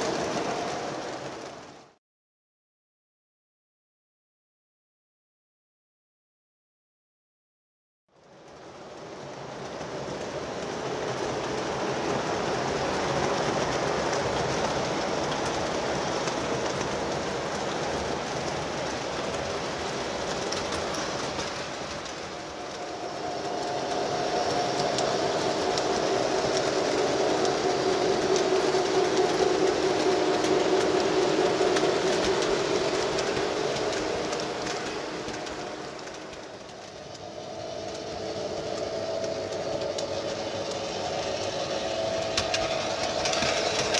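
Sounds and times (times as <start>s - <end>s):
model trains rolling on track: 0.0s - 2.0s, 8.2s - 43.9s
humming tone: 22.0s - 43.9s.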